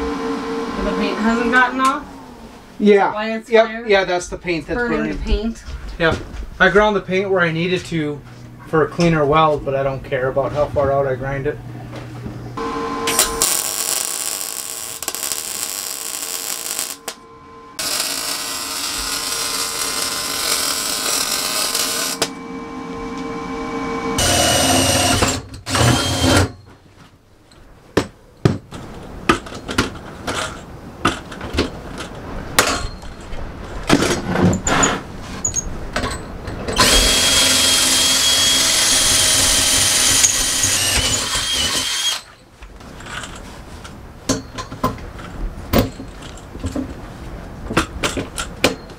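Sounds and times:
angle grinder whining on steel: 0.0 - 2.8, 12.6 - 26.5, 36.8 - 42.4
welder arc buzzing: 0.0 - 2.8, 12.6 - 26.5, 36.8 - 42.3.

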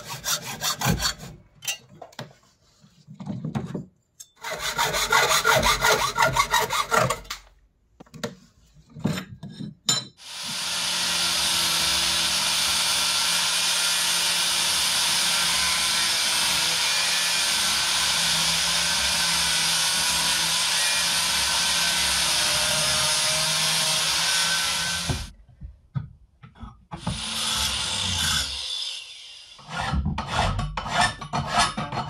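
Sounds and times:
angle grinder cutting steel: 10.2 - 25.3, 27.0 - 30.0.

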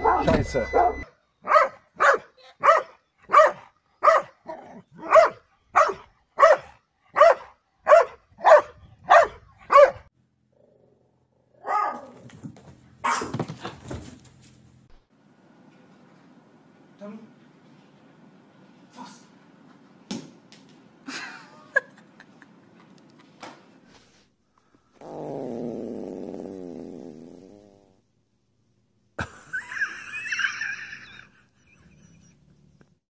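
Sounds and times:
dog barking: 0.8 - 10.1, 11.6 - 12.2, 13.0 - 13.4.

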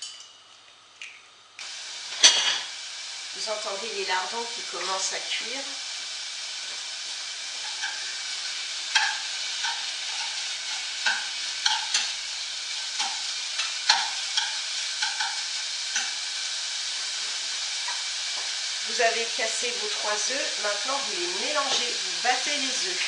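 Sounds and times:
bacon sizzling in a saucepan: 0.0 - 23.0
utensil clacking against pan: 8.9 - 12.1, 13.0 - 16.2.

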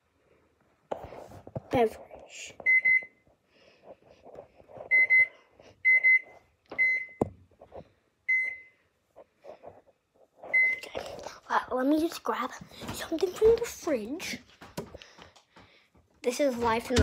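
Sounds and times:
microwave keypad beeping: 2.6 - 3.2, 4.9 - 7.2, 8.3 - 8.8.

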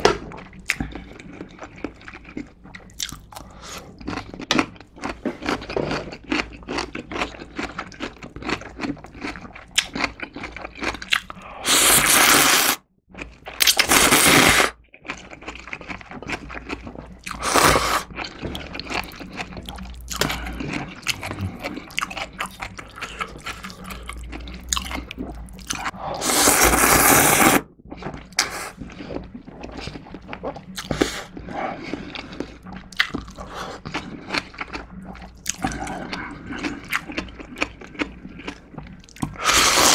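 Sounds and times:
wet chewing and smacking: 0.0 - 11.5, 13.1 - 13.9, 14.8 - 26.0, 27.6 - 39.9
loud slurps: 11.6 - 12.8, 17.3 - 18.1, 26.1 - 27.6, 39.4 - 39.9.

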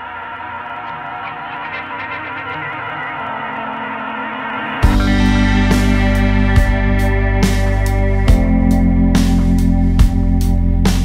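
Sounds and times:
background music with steady beat: 4.6 - 11.0.

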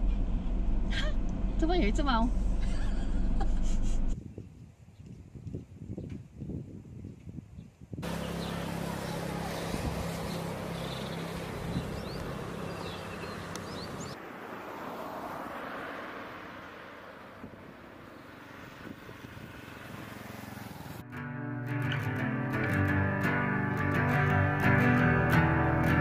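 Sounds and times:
passing traffic: 0.0 - 4.2, 8.0 - 26.0
low road hum: 0.0 - 26.0
motorcycle approaching: 8.0 - 26.0
guitar music: 21.0 - 26.0.

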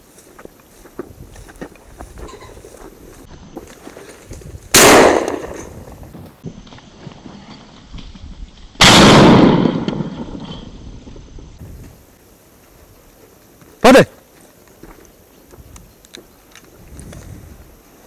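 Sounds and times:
shotgun shots echoing: 4.7 - 5.8, 8.8 - 10.4.

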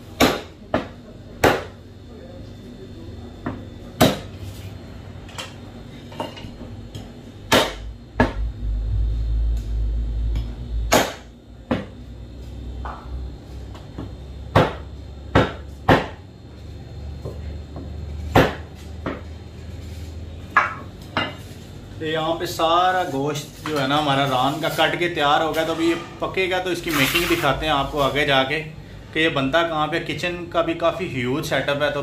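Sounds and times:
cleaver chopping meat and bone: 0.1 - 1.8, 7.5 - 8.4, 10.9 - 12.0, 14.5 - 16.2, 18.3 - 19.2
low rumble: 7.9 - 11.5.

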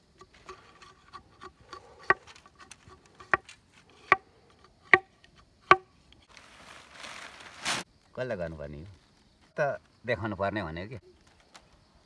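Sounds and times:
light ticks and scraping: 0.0 - 5.5
knife striking bamboo: 0.0 - 6.3.

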